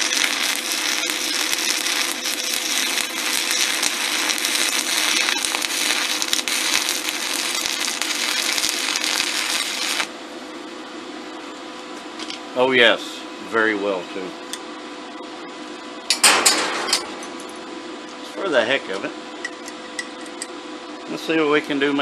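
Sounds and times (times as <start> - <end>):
welding arc crackling: 0.0 - 10.2.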